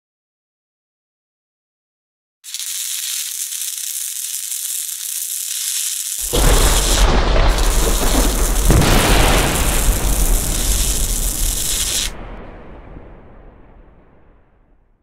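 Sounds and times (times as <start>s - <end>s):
steady hiss: 2.5s - 12.4s
loud boom with noisy rumble: 6.2s - 15.0s.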